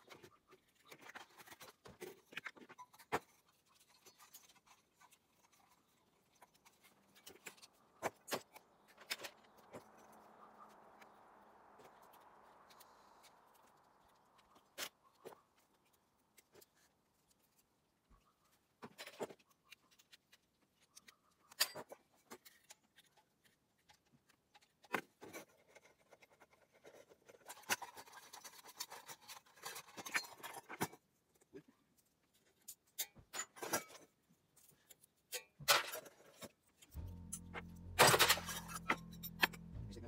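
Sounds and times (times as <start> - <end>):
metal lamp parts clinking: 35.3 - 39.6
scraping and rattling: 35.4 - 40.0.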